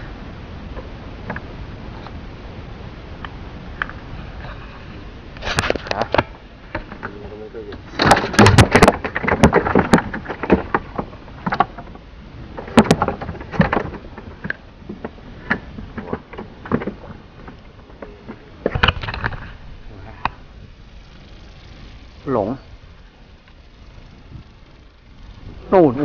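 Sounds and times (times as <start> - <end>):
low steady background noise: 0.0 - 26.0
knocks and clatter on boat: 5.5 - 20.4.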